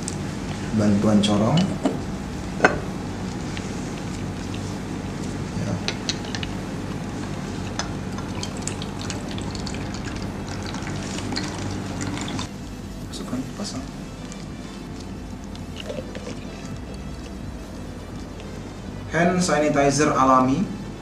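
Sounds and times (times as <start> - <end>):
liquid pouring through funnel: 8.2 - 12.5.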